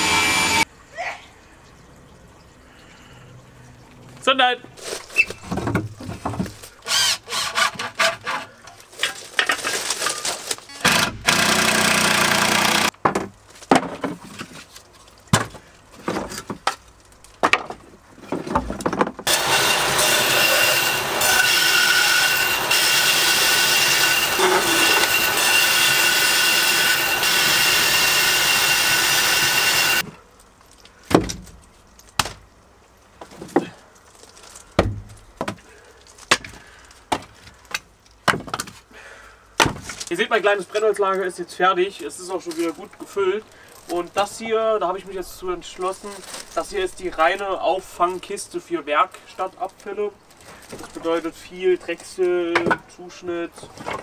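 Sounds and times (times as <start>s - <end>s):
bandsaw cutting wood: 0.0s - 0.7s, 6.8s - 8.5s, 10.8s - 12.9s, 19.2s - 30.0s
wood offcuts clunking into bin: 13.0s - 14.6s, 31.1s - 31.6s.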